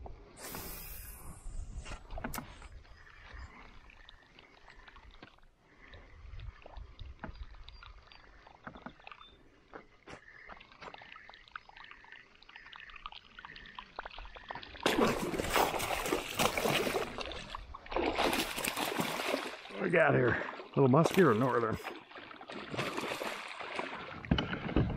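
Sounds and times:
fish splashing at surface: 14.8s - 19.7s.

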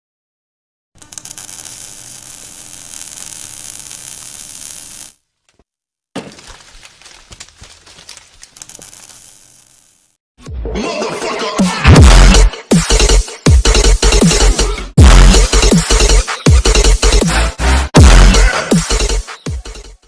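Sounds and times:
crackling fizzing fire and sparks: 1.0s - 5.2s, 6.2s - 10.2s.

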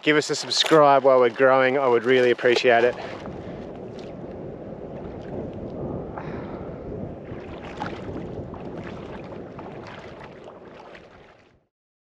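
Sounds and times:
water rushing: 0.0s - 11.6s
water splashing against hull: 0.0s - 11.7s
wind: 0.0s - 11.7s.

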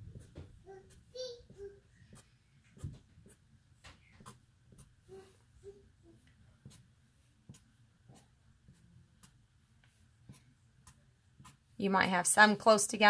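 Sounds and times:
marker scratching on paper: 0.0s - 3.5s, 4.1s - 5.4s, 6.6s - 11.7s.

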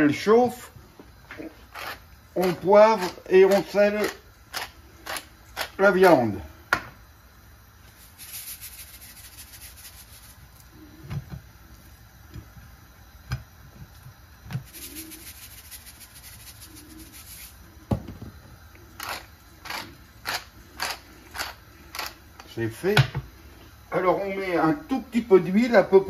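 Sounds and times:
pepper mill grinding: 1.4s - 6.2s, 8.0s - 10.6s, 14.6s - 17.6s, 19.0s - 22.5s.

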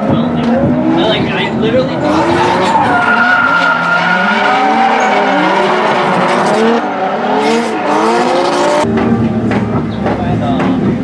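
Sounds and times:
car engines revving: 0.0s - 11.0s
tires squealing and skidding: 0.9s - 8.8s.

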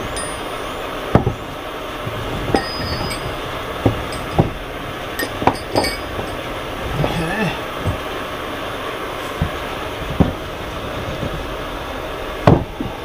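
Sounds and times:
wooden block knocking on metal: 2.5s - 4.6s.

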